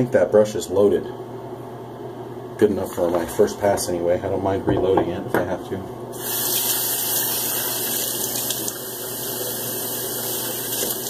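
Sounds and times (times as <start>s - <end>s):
water running from a tap: 6.2s - 11.0s.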